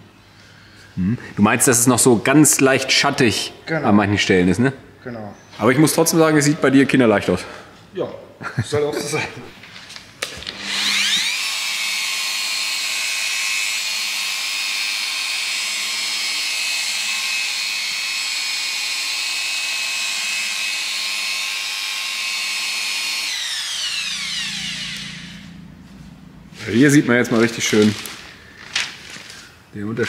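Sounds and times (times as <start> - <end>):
angle polisher high whine: 10.4 - 28.6.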